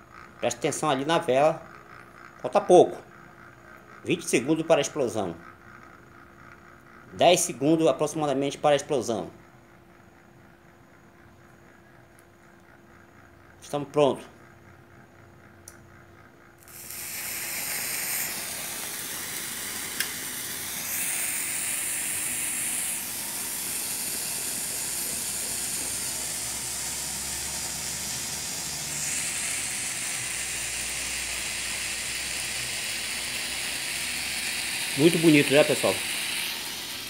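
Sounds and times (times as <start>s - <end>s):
sparkler candle fizzing hiss: 16.6s - 27.0s, 27.6s - 37.0s.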